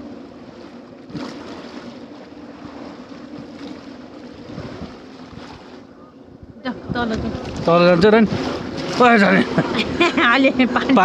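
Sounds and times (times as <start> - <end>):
steady low hum: 0.0 - 11.0
wind rumbling on microphone: 2.5 - 11.0
waves splashing against stone steps: 7.0 - 11.0.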